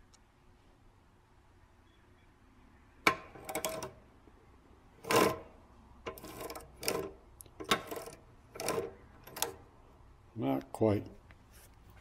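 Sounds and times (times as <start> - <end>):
drill press mechanism clicks and knocks: 3.0 - 4.0, 5.0 - 9.6
metal rattling: 5.0 - 9.7.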